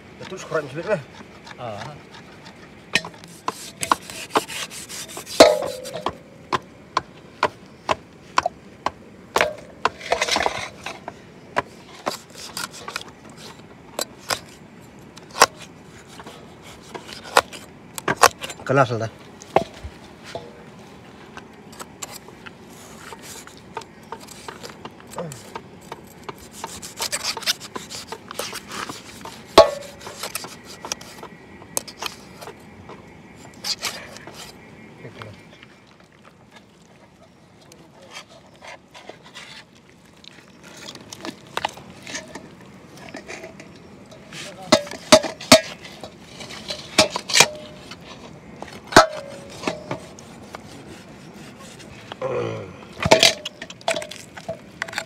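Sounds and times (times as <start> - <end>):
machete chopping: 3.0 - 6.6
knife rasping through skin: 3.2 - 6.0.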